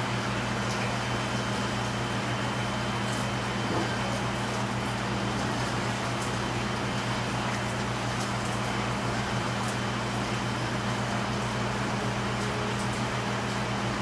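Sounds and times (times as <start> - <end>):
fan airy noise: 0.0 - 14.0.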